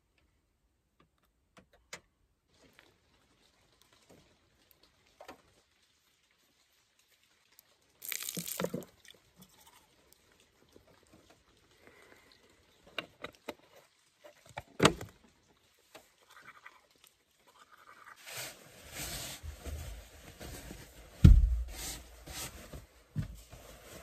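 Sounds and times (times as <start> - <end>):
toothbrush scrubbing teeth: 16.2 - 18.3.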